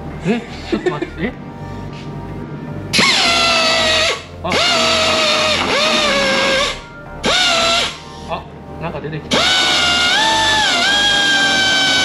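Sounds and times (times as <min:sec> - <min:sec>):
power tool grinding: 0:02.9 - 0:08.1, 0:09.3 - 0:12.0.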